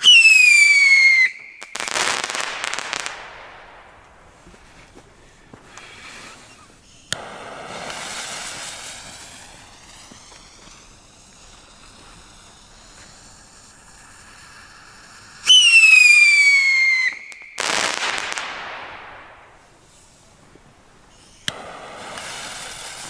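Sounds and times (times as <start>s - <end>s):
loud shrill whistle: 0.0s - 2.2s, 15.4s - 18.0s
whistling rocket: 0.0s - 4.4s, 5.7s - 20.2s, 21.1s - 23.0s
firework crackling: 0.0s - 23.0s.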